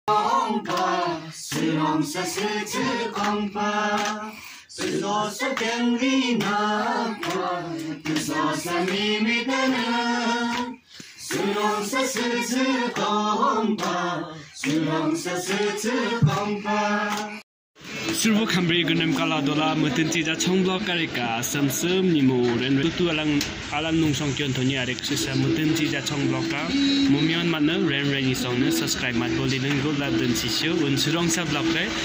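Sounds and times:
voices singing unaccompanied: 0:00.1 - 0:17.4, 0:18.0 - 0:32.0.

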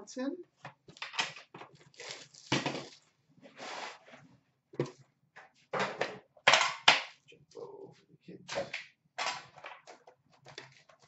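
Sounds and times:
card packs crinkling: 0:00.9 - 0:03.1.

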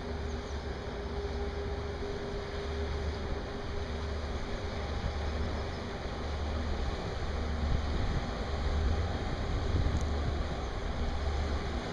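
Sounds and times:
ship engine rumble: 0:00.0 - 0:11.9
wind noise on microphone: 0:07.0 - 0:11.9.

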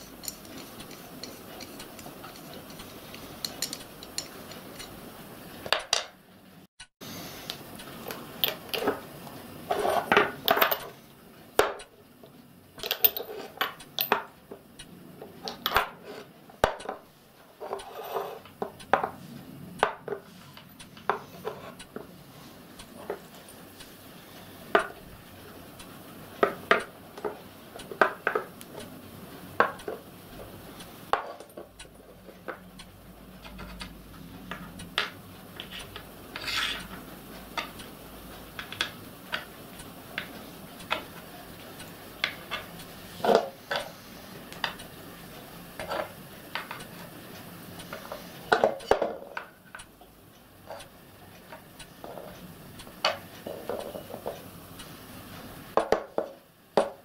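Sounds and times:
metal parts clinking and knocking: 0:00.0 - 0:05.0, 0:09.7 - 0:11.0, 0:12.8 - 0:14.3.

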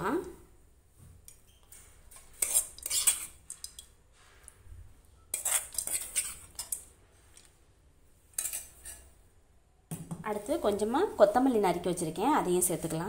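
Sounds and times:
metal spoon scraping cookware: 0:01.4 - 0:03.9, 0:05.3 - 0:07.5, 0:08.3 - 0:09.1.

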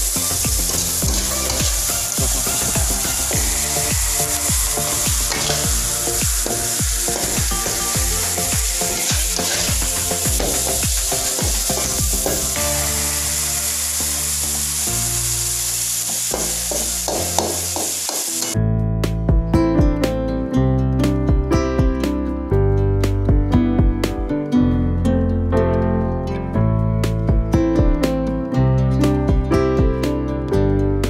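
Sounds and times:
food sizzling in a wok: 0:00.0 - 0:18.6
metal spatula scraping wok: 0:00.2 - 0:14.4.

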